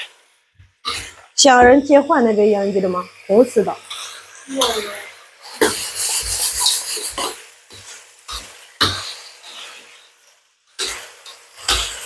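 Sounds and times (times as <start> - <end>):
metal spatula scraping a wok: 5.4 - 9.9.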